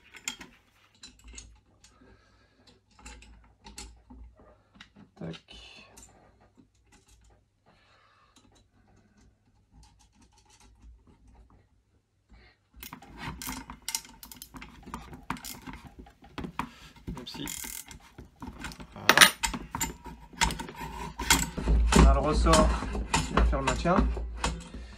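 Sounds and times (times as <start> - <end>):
metallic clicks and clinks: 0.0 - 0.5, 12.8 - 15.9, 17.2 - 20.6.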